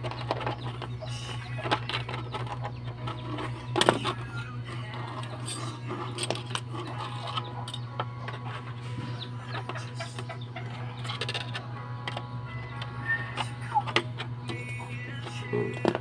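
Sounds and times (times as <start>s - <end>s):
chickens clucking: 0.0s - 16.0s
steady low hum: 0.0s - 16.0s.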